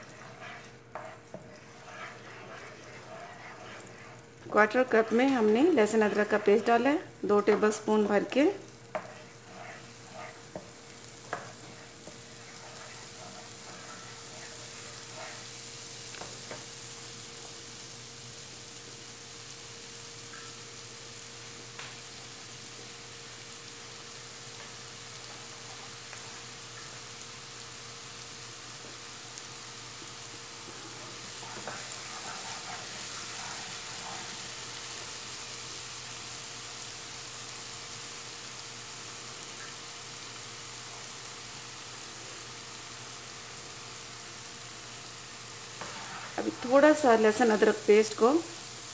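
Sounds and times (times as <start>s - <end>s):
wooden spoon tapping and scraping: 0.0s - 6.8s, 7.4s - 15.4s, 30.0s - 34.4s
paste sizzling in hot oil: 0.0s - 48.9s.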